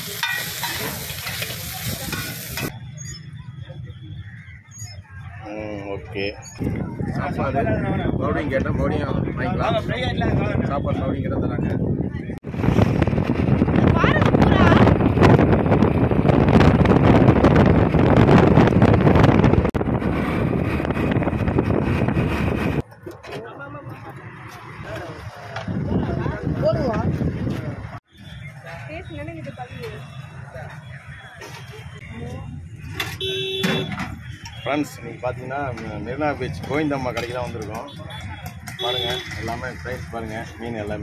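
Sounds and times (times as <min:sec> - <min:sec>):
food sizzling on a griddle: 0:00.0 - 0:02.7
wind buffeting microphone: 0:06.5 - 0:22.8, 0:24.7 - 0:28.0.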